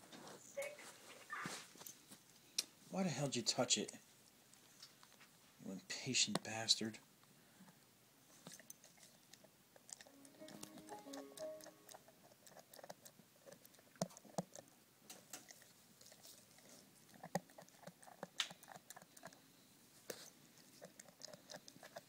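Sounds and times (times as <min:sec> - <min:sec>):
dog chewing toenails: 0:08.3 - 0:22.0.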